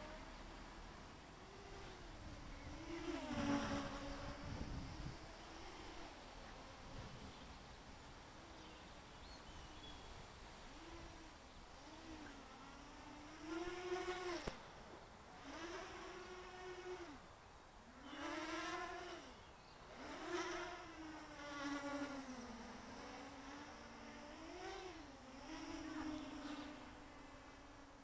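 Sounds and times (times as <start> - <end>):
drone motors whining: 1.3 - 7.3, 17.9 - 28.0.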